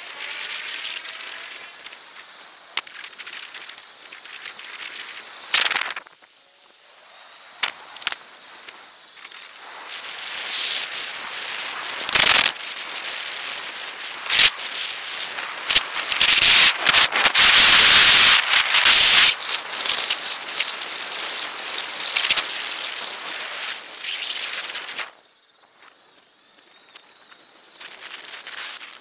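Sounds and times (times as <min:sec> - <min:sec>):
wind noise on microphone: 0:00.0 - 0:06.4, 0:09.5 - 0:25.1.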